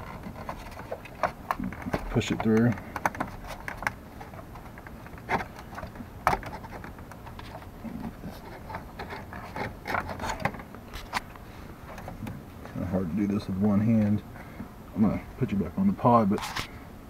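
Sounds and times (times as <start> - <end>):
plastic clicks and knocks: 0.0 - 11.2
rubbing and handling noise: 0.0 - 16.8.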